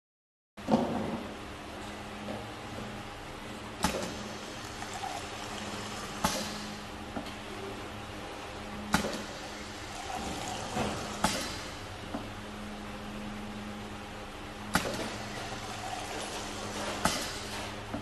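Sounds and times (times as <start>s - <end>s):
steady low hum: 0.8s - 18.0s
liquid hissing into plastic jar: 3.8s - 6.8s, 9.0s - 11.8s
filling machine clunks: 8.9s - 11.9s.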